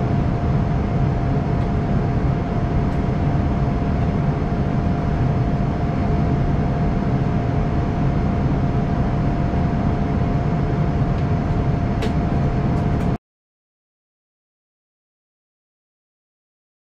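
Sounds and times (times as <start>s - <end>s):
airliner engines and rushing air: 0.0s - 13.2s
faint steady hum: 0.0s - 13.2s.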